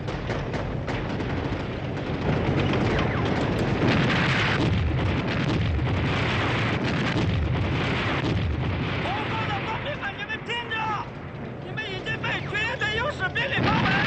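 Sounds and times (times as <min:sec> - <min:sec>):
gunfire cracks: 0:00.0 - 0:09.8
explosions: 0:00.0 - 0:11.3, 0:13.4 - 0:14.0.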